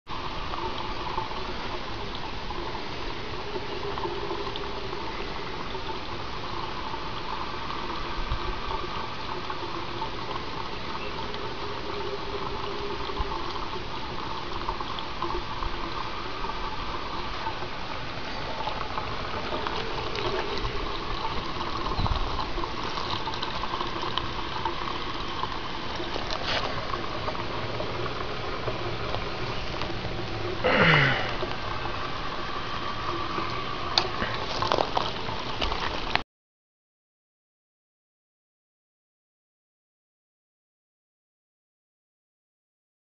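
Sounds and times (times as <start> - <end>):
water pouring from pump spout: 0.1 - 36.2.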